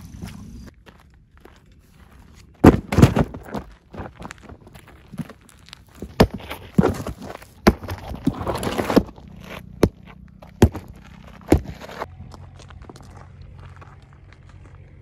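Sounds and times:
footsteps on stony ground: 0:00.0 - 0:15.0
cardboard box scraped on stony dirt: 0:06.0 - 0:12.1.

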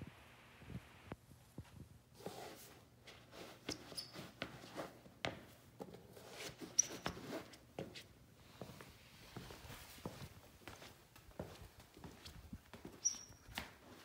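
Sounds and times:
footsteps on concrete floor: 0:01.6 - 0:14.0
shoe soles squeaking: 0:02.3 - 0:08.8, 0:09.4 - 0:14.0.

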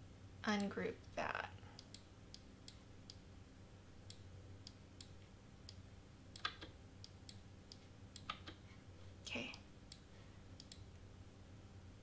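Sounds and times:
low steady hum: 0:00.0 - 0:12.0
computer mouse clicking: 0:06.4 - 0:08.6, 0:09.5 - 0:10.9.

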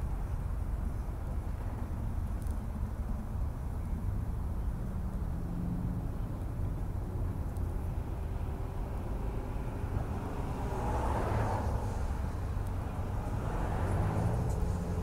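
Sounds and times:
traffic engine rumble: 0:00.0 - 0:15.0
vehicle passing by: 0:08.0 - 0:15.0.

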